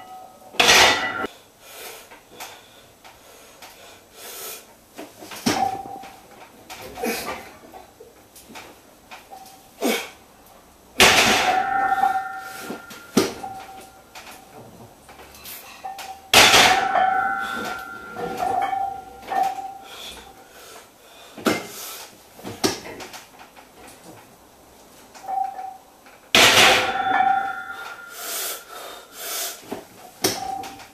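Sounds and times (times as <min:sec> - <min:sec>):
barbell clanging onto metal pins: 0:00.0 - 0:01.3, 0:05.5 - 0:06.2, 0:11.0 - 0:14.6, 0:15.7 - 0:19.9, 0:25.2 - 0:25.8, 0:26.4 - 0:28.6, 0:30.2 - 0:30.9
clinks of bar and plates: 0:00.0 - 0:01.3, 0:11.0 - 0:19.8, 0:25.2 - 0:25.8, 0:26.4 - 0:28.7, 0:30.2 - 0:30.9.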